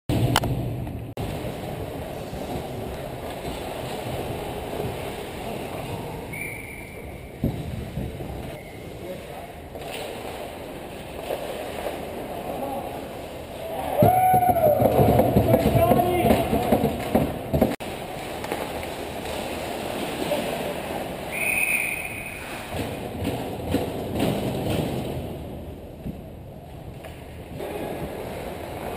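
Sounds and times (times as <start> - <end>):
low rumbling ice rink ambience: 0.1 - 28.9
referee's whistle blast: 21.3 - 22.5.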